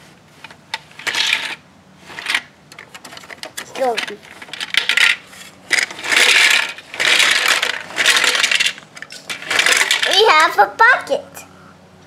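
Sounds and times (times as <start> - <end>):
toy bricks rattling in plastic drum: 1.0 - 10.5.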